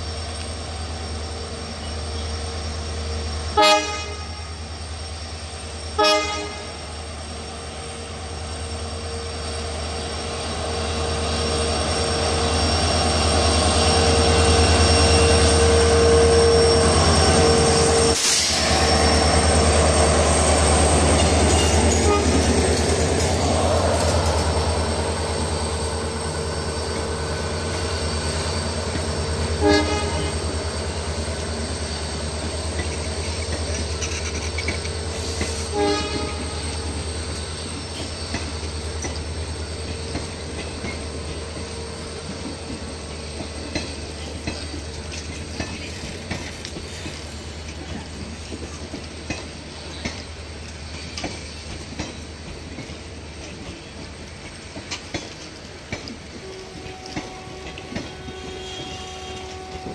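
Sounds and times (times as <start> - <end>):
train rumbling past: 0.0 - 59.9
locomotive horn blasts: 3.6 - 4.5, 6.0 - 6.8, 21.9 - 22.5, 29.6 - 30.5, 35.6 - 36.8, 56.4 - 59.9.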